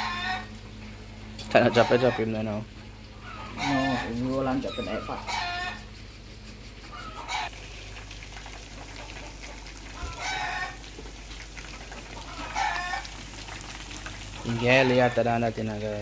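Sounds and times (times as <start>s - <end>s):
chickens calling: 0.0s - 0.6s, 1.6s - 2.4s, 3.1s - 7.6s, 8.6s - 11.0s, 11.8s - 15.4s
food sizzling in hot oil: 7.1s - 16.0s.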